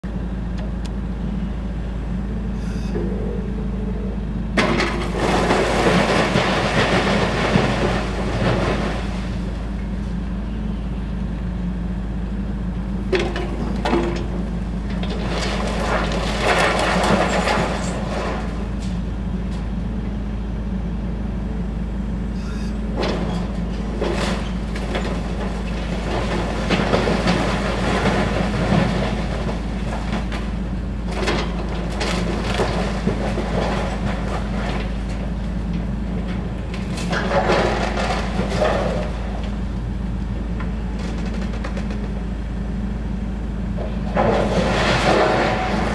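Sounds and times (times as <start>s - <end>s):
excavator diesel engine: 0.0s - 45.9s
rubble falling: 4.6s - 9.6s, 13.2s - 18.8s, 23.0s - 39.8s, 44.0s - 45.9s
brick crunching and clattering: 13.2s - 18.6s.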